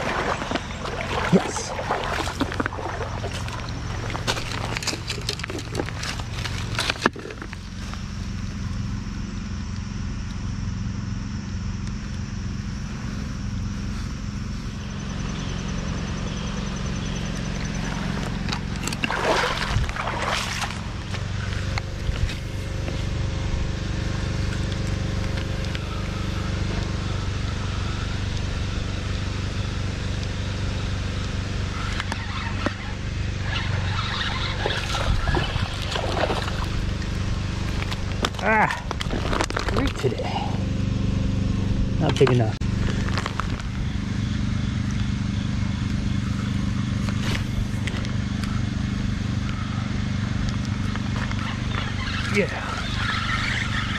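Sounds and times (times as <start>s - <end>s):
creek water running over rocks: 0.0s - 7.9s, 17.4s - 22.9s, 31.7s - 40.2s.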